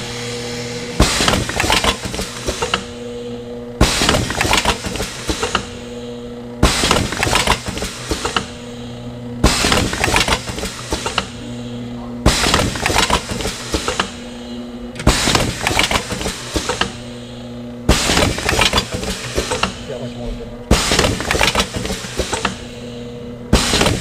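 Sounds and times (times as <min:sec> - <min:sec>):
steady machine hum: 0:00.0 - 0:24.0
machine clatter bursts: 0:01.0 - 0:03.1, 0:03.8 - 0:05.9, 0:06.6 - 0:08.6, 0:09.4 - 0:11.5, 0:12.2 - 0:14.3, 0:15.0 - 0:17.1, 0:17.8 - 0:19.9, 0:20.7 - 0:22.8, 0:23.5 - 0:24.0.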